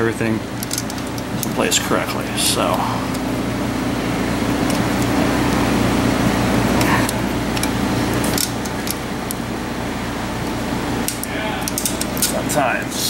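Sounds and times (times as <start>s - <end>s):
machine hum: 0.0s - 13.0s
small metal parts clicking: 0.6s - 1.6s, 7.5s - 9.4s, 11.1s - 12.4s.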